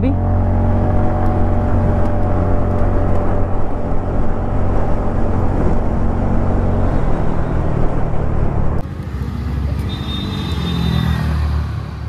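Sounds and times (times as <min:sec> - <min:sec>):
scooter engine accelerating: 0:00.0 - 0:08.8.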